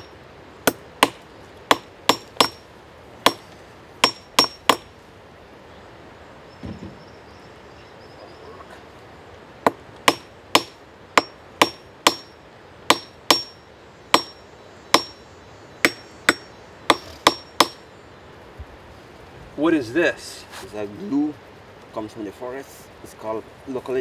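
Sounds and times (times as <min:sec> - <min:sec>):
hammer striking metal anvil: 0:12.9 - 0:13.6.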